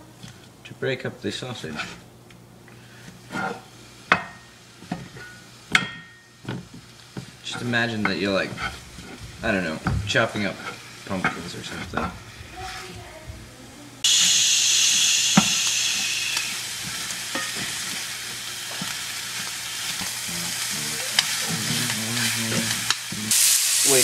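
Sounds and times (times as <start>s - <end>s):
spatula scraping a pan: 1.6s - 2.1s, 2.8s - 5.4s, 6.6s - 13.1s, 15.3s - 23.2s
sausage sizzling in a pan: 2.8s - 13.1s, 14.0s - 24.0s.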